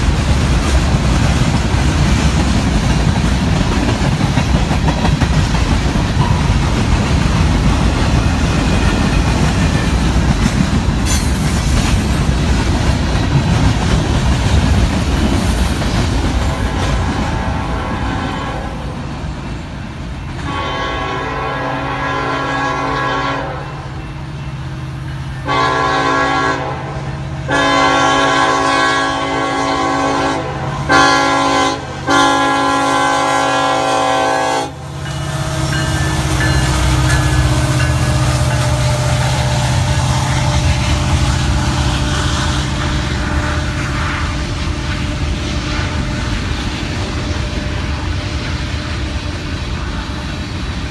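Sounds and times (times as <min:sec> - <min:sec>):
locomotive air horn blasts: 0:16.4 - 0:19.0, 0:20.4 - 0:24.0, 0:25.4 - 0:46.5.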